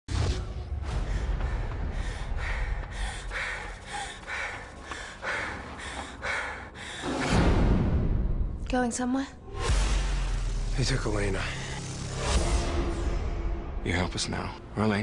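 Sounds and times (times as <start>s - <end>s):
frightened gasping breaths: 0.9s - 7.4s.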